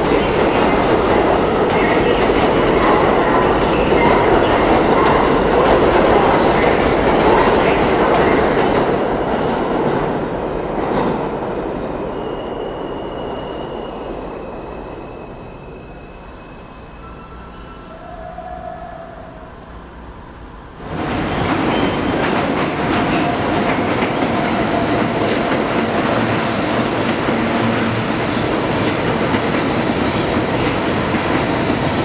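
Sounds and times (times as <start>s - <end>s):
subway train rumbling: 0.0s - 32.0s.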